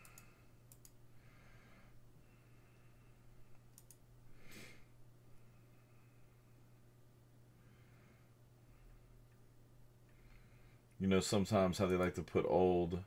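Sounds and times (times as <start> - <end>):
faint clicks: 0.0 - 1.0, 3.5 - 4.0
low electrical hum: 0.0 - 13.0.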